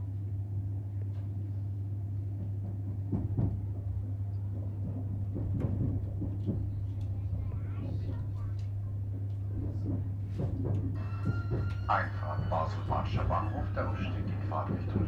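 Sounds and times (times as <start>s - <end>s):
train interior low hum: 0.0s - 15.0s
knocks and rattles: 2.3s - 15.0s.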